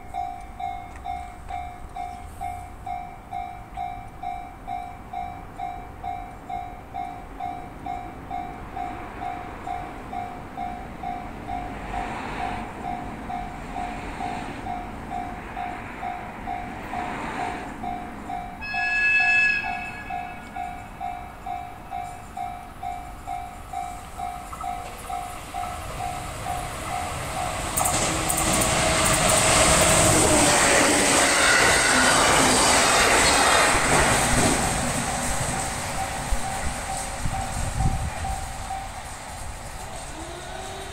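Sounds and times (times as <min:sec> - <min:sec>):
electric train running: 0:11.3 - 0:40.9
level crossing bell ringing: 0:17.9 - 0:27.7
train horn blast: 0:18.6 - 0:20.6, 0:27.5 - 0:32.4, 0:40.0 - 0:40.9.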